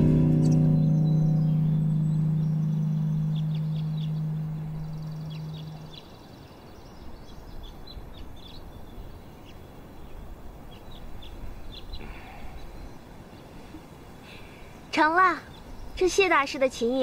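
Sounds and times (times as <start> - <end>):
low sustained musical note: 0.0 - 7.6
faint outdoor hiss: 0.0 - 17.0
small birds chirping: 0.0 - 17.0.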